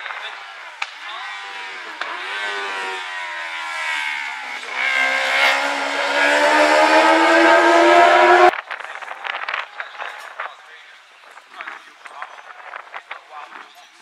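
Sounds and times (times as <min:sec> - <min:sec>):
motorcycle engine revving: 0:00.0 - 0:08.6.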